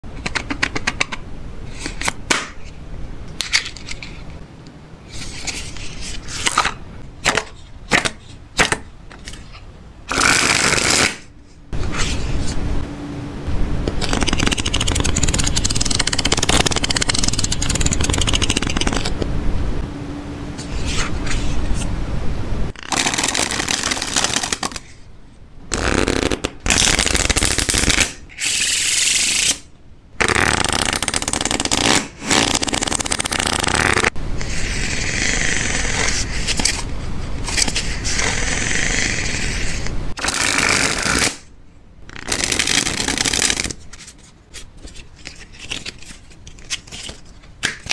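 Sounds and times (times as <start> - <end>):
playing cards being shuffled: 14.0 - 19.2, 22.8 - 24.8, 25.7 - 28.1, 30.3 - 34.1, 40.3 - 41.4, 42.1 - 47.9.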